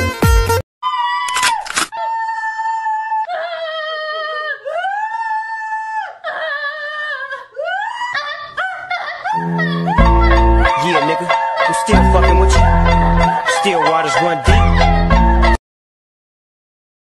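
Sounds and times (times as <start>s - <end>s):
high-pitched voice wailing: 9.2s - 12.6s.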